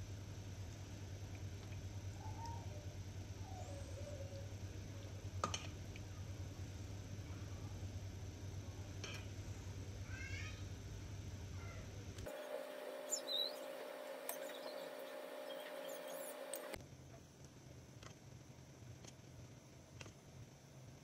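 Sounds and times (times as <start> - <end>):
faint high squeak: 12.3 - 16.8
low hum: 12.3 - 16.8.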